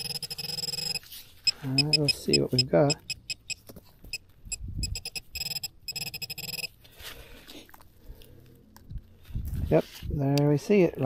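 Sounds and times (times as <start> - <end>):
metal detector beeping: 0.0 - 6.8.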